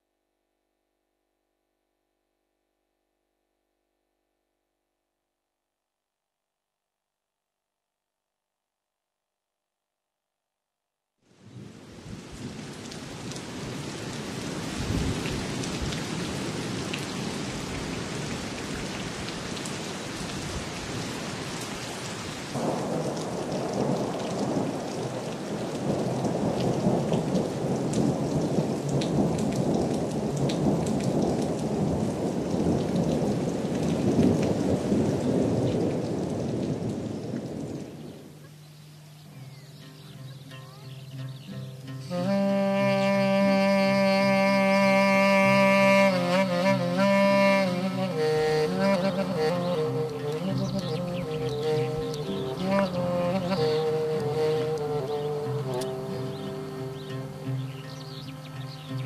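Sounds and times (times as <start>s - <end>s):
rain falling steadily: 11.2s - 59.0s
low rumbles of thunder: 14.6s - 17.4s, 22.6s - 38.3s.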